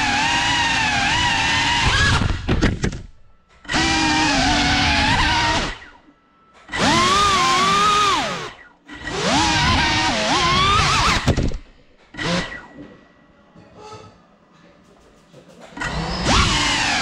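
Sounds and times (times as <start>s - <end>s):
drone propellers whining: 15.8s - 17.0s.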